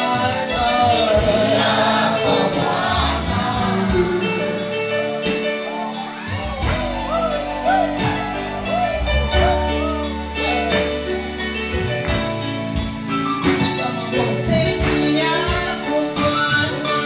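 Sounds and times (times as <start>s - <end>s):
electronic keyboard gospel music: 0.0s - 17.0s.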